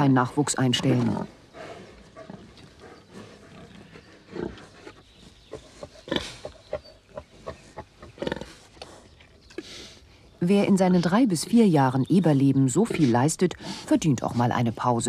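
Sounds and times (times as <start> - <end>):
pigs grunting: 0.6 - 10.0.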